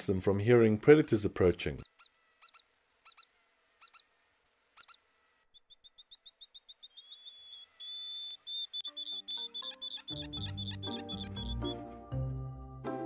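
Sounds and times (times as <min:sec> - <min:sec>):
rapid high peeps: 0:04.8 - 0:12.0
high-pitched animal chirps: 0:05.6 - 0:11.8.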